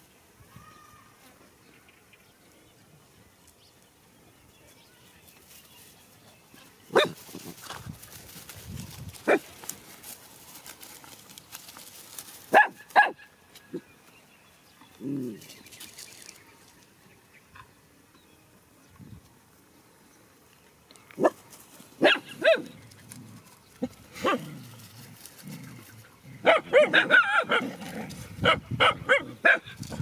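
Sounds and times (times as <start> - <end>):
dog barking: 6.9 - 7.2, 9.2 - 9.4, 12.5 - 13.3, 21.2 - 21.4, 22.0 - 22.8, 26.4 - 27.8, 28.4 - 29.8.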